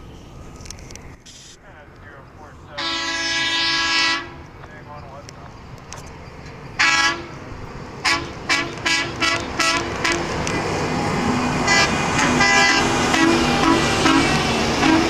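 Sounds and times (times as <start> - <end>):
horn short toots: 2.8 - 4.4, 11.7 - 15.0.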